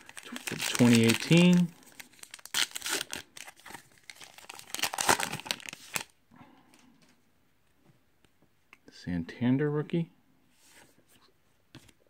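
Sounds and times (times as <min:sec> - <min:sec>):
card pack wrapper crinkling: 0:00.0 - 0:06.2.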